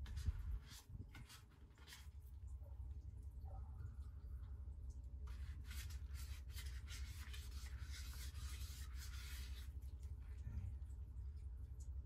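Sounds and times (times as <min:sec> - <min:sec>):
wet sandpaper rubbing: 0:00.0 - 0:02.2, 0:05.3 - 0:09.8.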